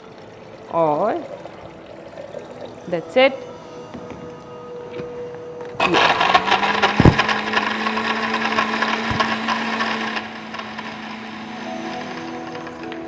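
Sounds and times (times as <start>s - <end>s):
blender motor hum: 4.3s - 13.0s
blender crushing ice: 5.8s - 13.0s.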